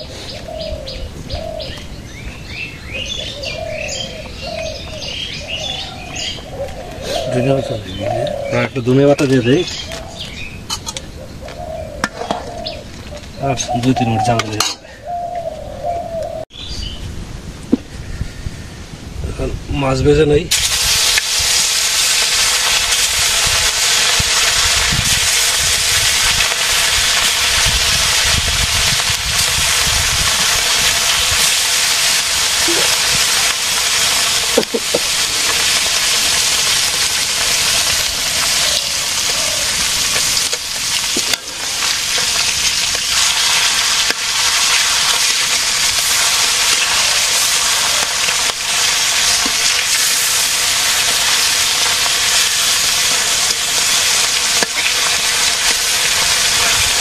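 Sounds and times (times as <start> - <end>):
fish sizzling in hot oil: 20.5 - 57.0
pan or utensil knocks: 34.6 - 35.1.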